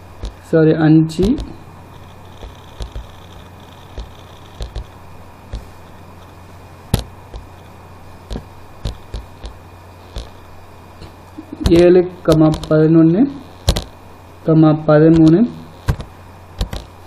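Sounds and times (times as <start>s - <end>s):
low electrical hum: 0.0s - 17.0s
sharp irregular clicks: 0.2s - 0.4s, 1.2s - 10.4s, 11.6s - 12.8s, 13.6s - 14.0s, 15.1s - 17.0s.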